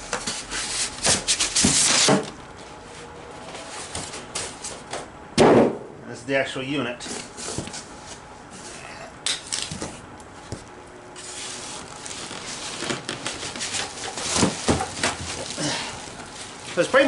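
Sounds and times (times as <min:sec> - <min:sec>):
plastic wrapping crinkling: 0:11.2 - 0:17.0
cardboard flaps rubbing and knocking: 0:11.6 - 0:15.5.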